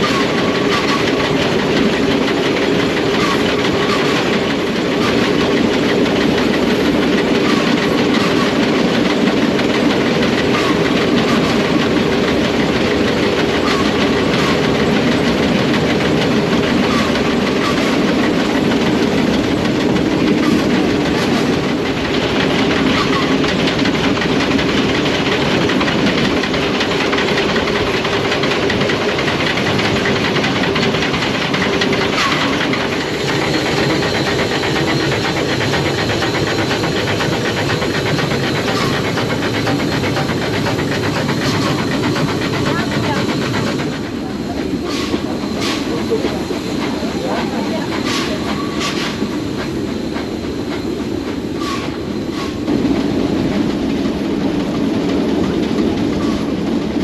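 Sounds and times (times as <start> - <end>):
steam locomotive chugging: 0.0 - 57.0
wheels clicking on rails: 0.0 - 57.0.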